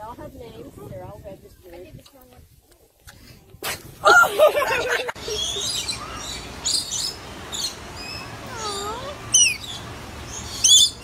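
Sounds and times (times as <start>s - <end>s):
lorikeets chirping: 5.2s - 11.0s.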